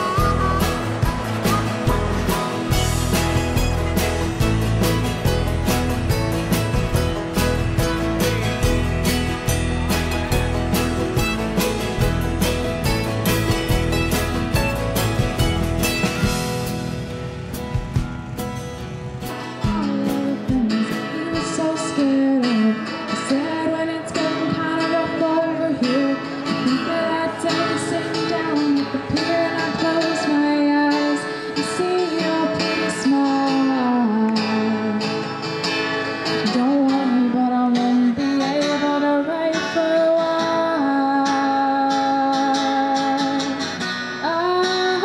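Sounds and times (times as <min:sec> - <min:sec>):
person singing: 0:00.0 - 0:03.8, 0:19.4 - 0:35.5, 0:36.4 - 0:45.0
strummed acoustic guitar: 0:00.0 - 0:45.0.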